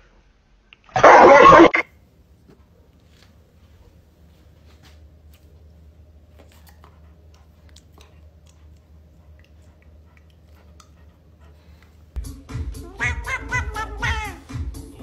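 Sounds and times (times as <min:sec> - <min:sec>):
low steady hum: 0:00.0 - 0:12.2
dog mouthing clicks and smacks: 0:06.3 - 0:11.0.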